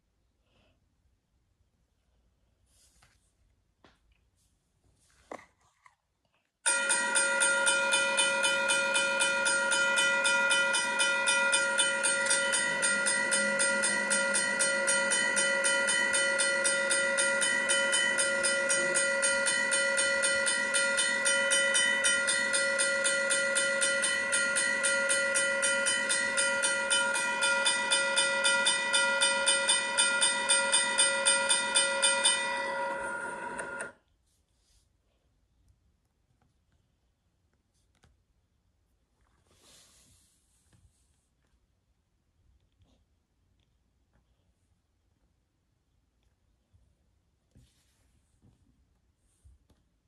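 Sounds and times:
railroad crossing bell ringing: 0:06.7 - 0:33.9.

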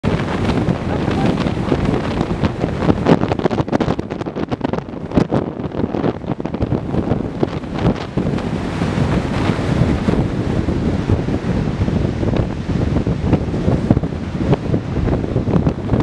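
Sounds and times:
waterfall rushing: 0:00.0 - 0:03.1
wind buffeting microphone: 0:00.0 - 0:16.0.

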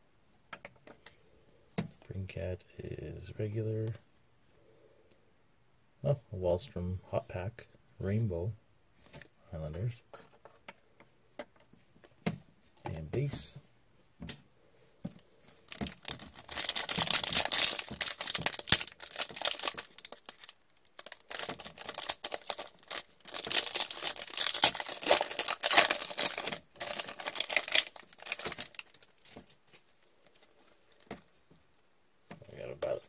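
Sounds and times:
foil wrapper crinkling and tearing: 0:15.7 - 0:31.0.

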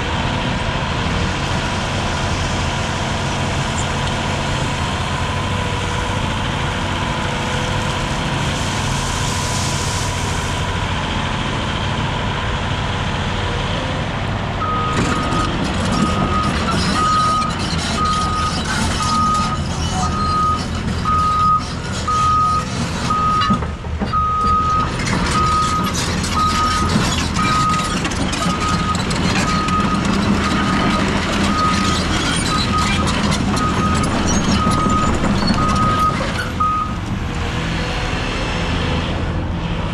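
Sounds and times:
excavator diesel engine running: 0:00.0 - 0:39.9
tracks rattling: 0:14.7 - 0:37.1.

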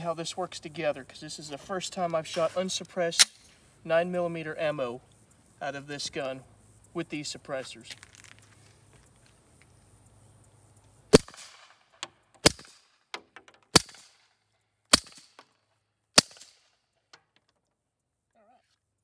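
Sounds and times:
suppressed pistol shots: 0:11.1 - 0:11.8, 0:12.4 - 0:12.8, 0:13.7 - 0:14.2, 0:14.9 - 0:15.4, 0:16.2 - 0:16.6.

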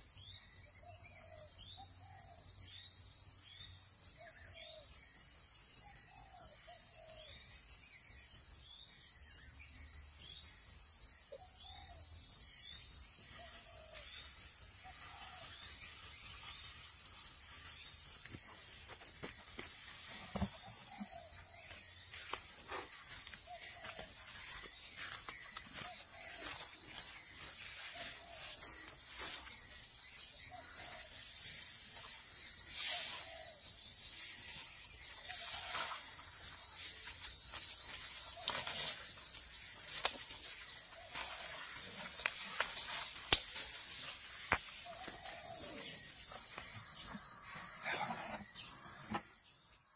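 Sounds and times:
insect chorus high trill: 0:00.0 - 0:49.9
sharp cracks and rustles: 0:42.2 - 0:43.8.

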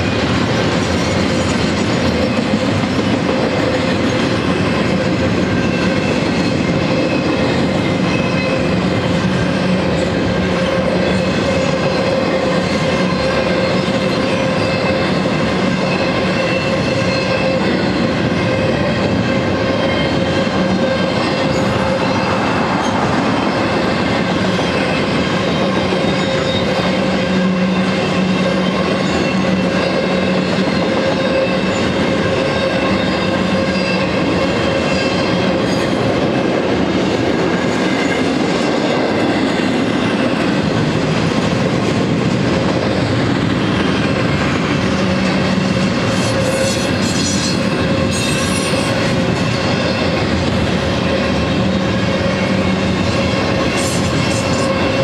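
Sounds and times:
train wheels clattering on rail: 0:00.0 - 0:55.0.

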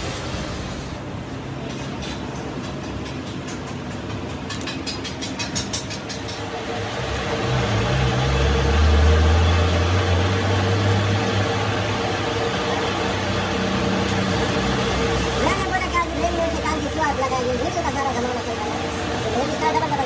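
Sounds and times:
lathe motor humming: 0:06.7 - 0:20.0.

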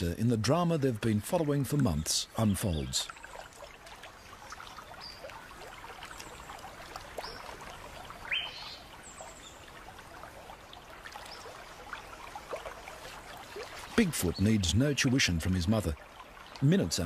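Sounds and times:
water trickling in a creek: 0:00.0 - 0:17.0.

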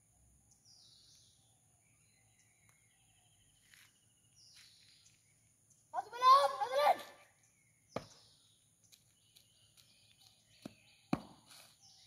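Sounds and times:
foot stamps on dirt: 0:07.9 - 0:12.0.

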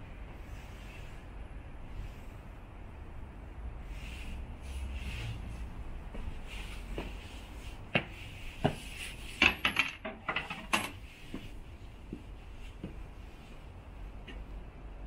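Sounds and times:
low background hum: 0:00.0 - 0:15.0
hard objects clicking and knocking: 0:09.4 - 0:11.0.

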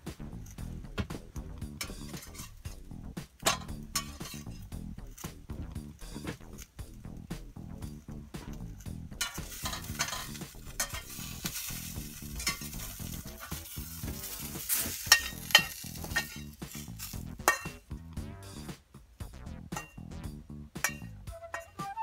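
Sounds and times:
onion sizzling in a frying pan: 0:01.4 - 0:18.0
metal utensil scraping a pan: 0:01.6 - 0:07.0, 0:07.8 - 0:17.9, 0:19.8 - 0:20.0, 0:20.8 - 0:22.0.

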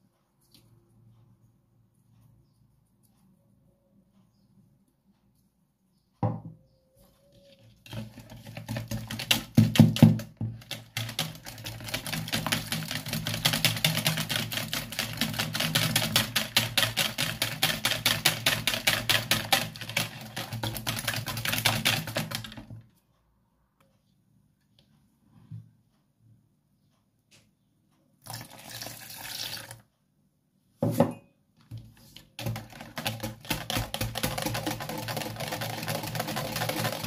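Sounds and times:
wire whisk beating eggs: 0:07.7 - 0:22.8, 0:32.0 - 0:37.0
whisk knocking bowl: 0:07.8 - 0:22.8, 0:31.7 - 0:37.0.

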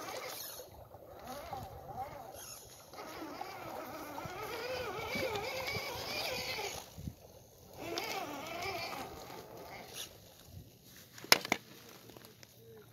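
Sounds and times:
toy truck electric motor whining: 0:00.0 - 0:10.2.

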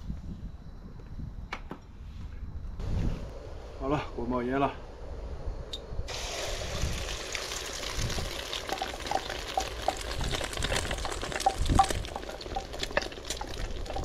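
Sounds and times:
egg pouring into hot oil: 0:06.1 - 0:14.0
oil sizzling and popping: 0:06.1 - 0:14.0.

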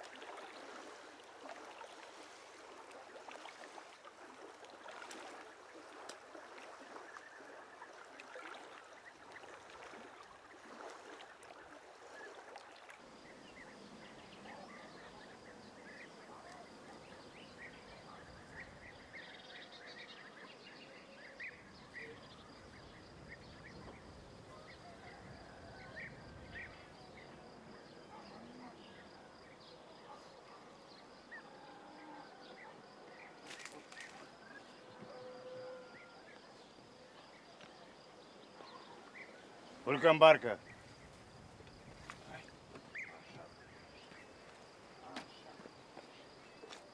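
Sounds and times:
water splashing: 0:00.0 - 0:19.2, 0:32.5 - 0:34.9
birds chirping: 0:12.8 - 0:31.6, 0:32.3 - 0:46.9.

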